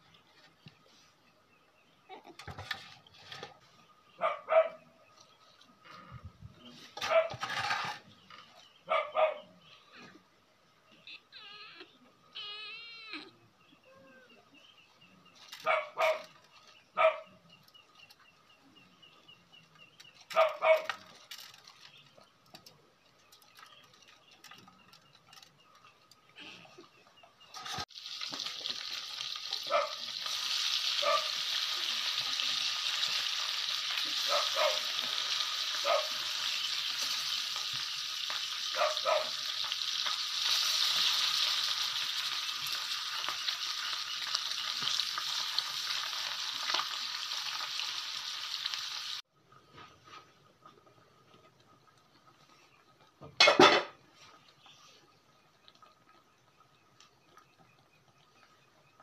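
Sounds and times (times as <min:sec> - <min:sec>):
animal calls: 0:10.9 - 0:14.6
fish sizzling in hot oil: 0:27.6 - 0:49.3.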